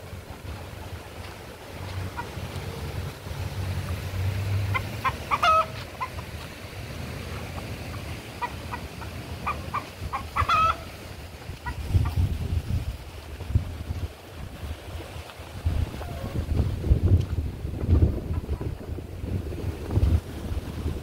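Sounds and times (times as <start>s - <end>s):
roosters clucking: 0.0s - 12.6s, 15.6s - 16.6s, 17.3s - 19.0s
wind rumble on microphone: 0.0s - 21.0s.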